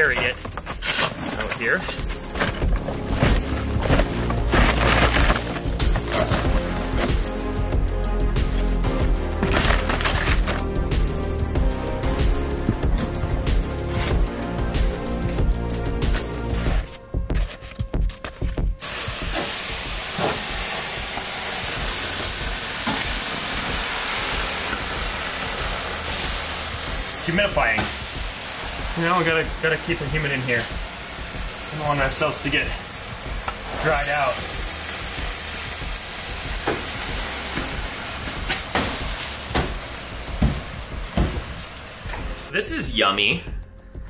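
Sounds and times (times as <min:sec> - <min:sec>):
water sizzling on hot stove: 0:00.0 - 0:07.4, 0:18.4 - 0:42.6
background music: 0:00.0 - 0:44.0
tank knocking on stove: 0:36.5 - 0:42.3.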